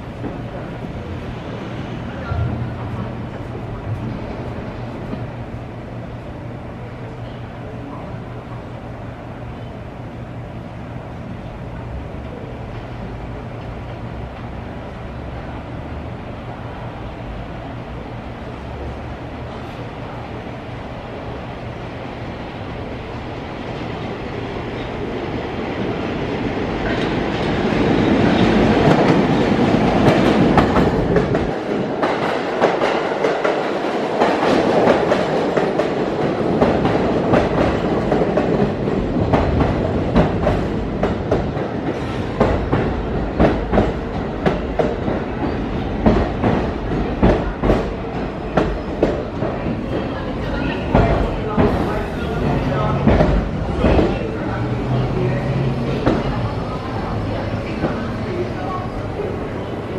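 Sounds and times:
subway train rumble: 0.0s - 59.9s.

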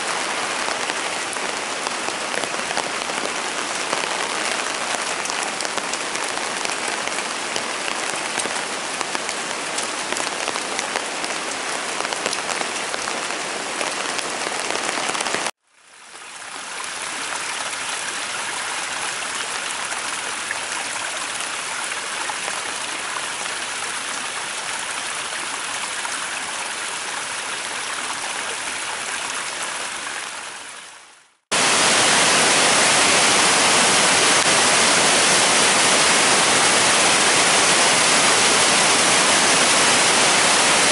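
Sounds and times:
heavy rain falling: 0.0s - 15.6s, 31.5s - 40.9s
river pouring over a weir: 0.0s - 40.9s.

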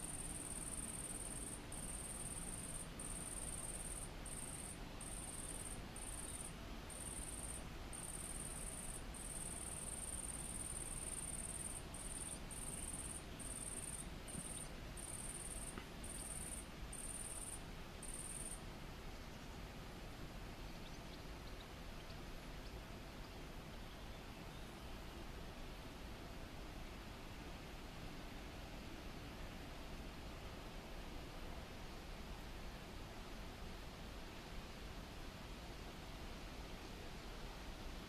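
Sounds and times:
insect buzzing song: 0.0s - 18.6s
low background noise: 0.0s - 38.0s.

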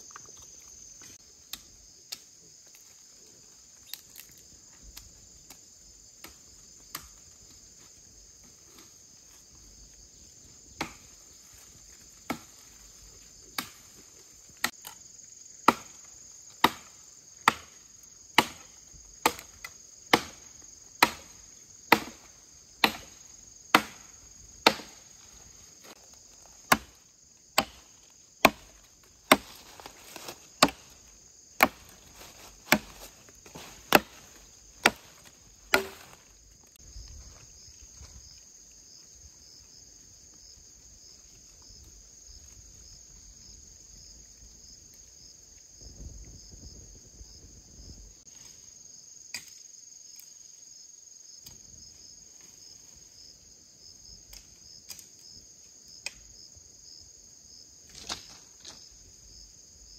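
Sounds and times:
crickets buzzing: 0.0s - 59.9s
tool striking wood: 20.1s - 20.4s, 22.8s - 23.1s, 23.7s - 24.0s, 24.6s - 25.0s, 26.7s - 26.9s, 27.6s - 27.8s, 28.4s - 31.0s, 31.6s - 36.2s.

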